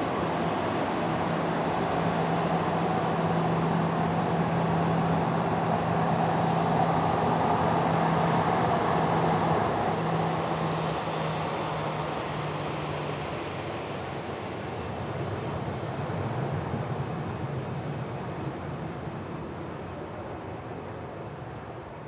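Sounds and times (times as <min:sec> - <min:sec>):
jet engines taxiing: 0:00.0 - 0:22.0.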